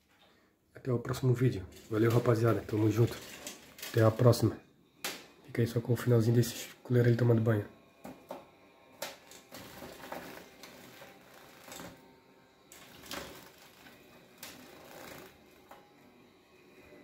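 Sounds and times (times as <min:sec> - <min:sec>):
wing fluttering: 0:12.8 - 0:15.6.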